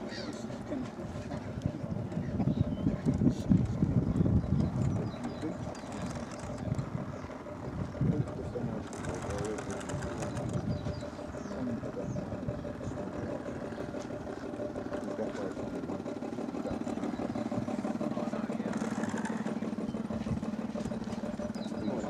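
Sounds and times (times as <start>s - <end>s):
model boat motor humming: 0.0s - 22.0s.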